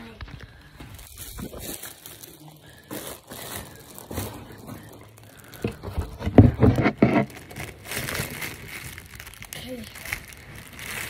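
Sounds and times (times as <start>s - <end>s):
rustling and crinkling: 0.0s - 11.0s.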